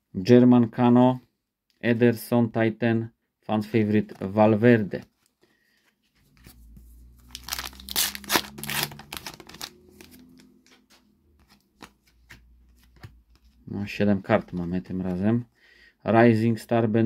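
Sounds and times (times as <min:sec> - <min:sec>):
wrapper tearing and crinkling: 0:07.2 - 0:10.6.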